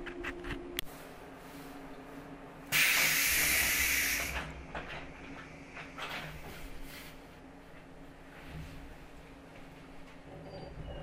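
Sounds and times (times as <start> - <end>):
train car low hum: 0.0 - 11.0
compressed air hissing: 2.7 - 4.5.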